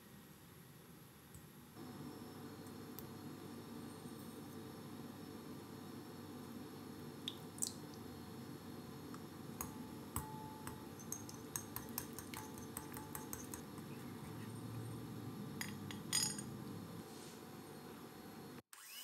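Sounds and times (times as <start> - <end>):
whisk clinking against ceramic bowl: 9.6 - 14.4, 15.6 - 16.5.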